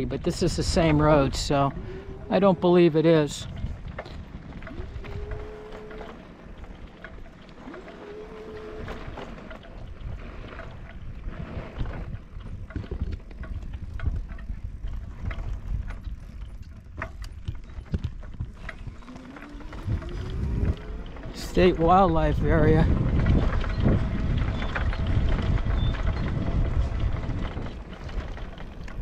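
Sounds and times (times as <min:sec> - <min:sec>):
rising whine: 0:00.0 - 0:03.5, 0:04.5 - 0:06.2, 0:18.8 - 0:25.0
vehicle rumbling on rough road: 0:00.0 - 0:29.0
knocks and rattles: 0:03.1 - 0:29.0.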